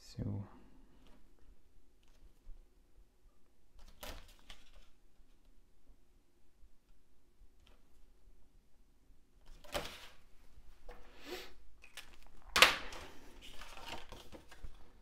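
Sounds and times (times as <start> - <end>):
card and plastic film rustling: 11.8 - 15.0.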